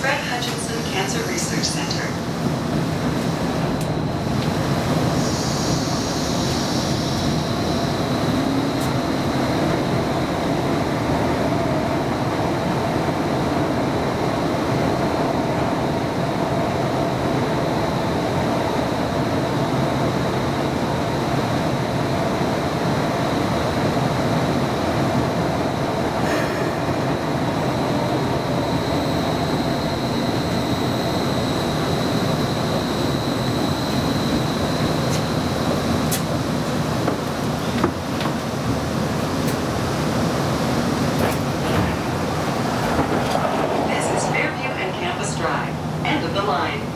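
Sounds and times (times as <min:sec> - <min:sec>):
streetcar rolling on track: 0:00.0 - 0:46.9
high whine: 0:41.5 - 0:46.6.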